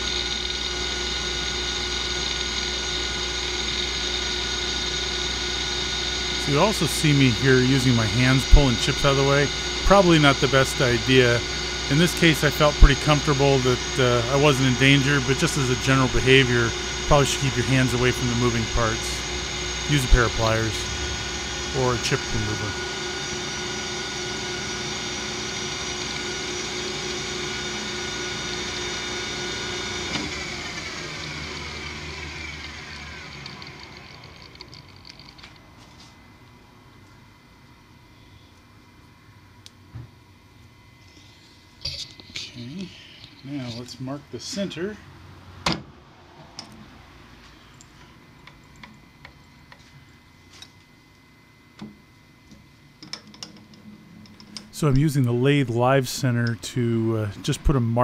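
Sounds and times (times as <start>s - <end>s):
lathe motor and gear hum: 0.0s - 38.0s, 46.4s - 58.0s
whining tones: 0.0s - 39.6s.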